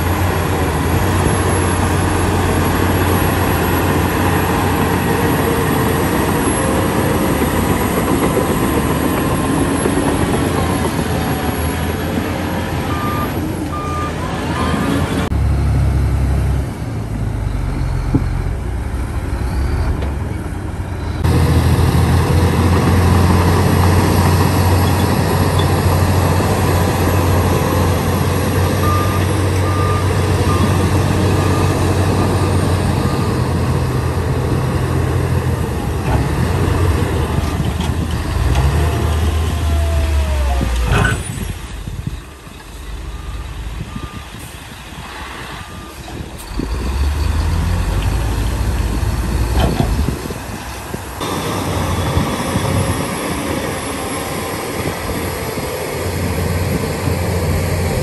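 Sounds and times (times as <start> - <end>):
heavy diesel engines under load: 0.0 - 58.0
truck engine low rumble: 0.0 - 58.0
reversing alarm beeps: 12.9 - 14.9, 28.8 - 31.8, 43.0 - 44.4.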